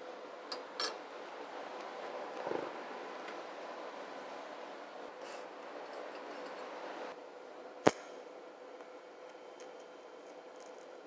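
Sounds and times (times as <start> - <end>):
welding arc hum: 0.0 - 11.0
sharp snap: 7.8 - 8.2.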